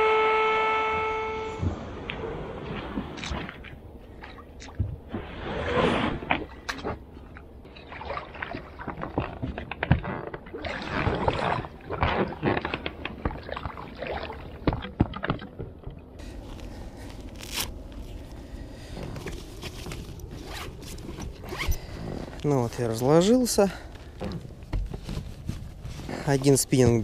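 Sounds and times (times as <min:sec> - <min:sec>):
fishing gear scraping and rustling: 0:16.2 - 0:27.0.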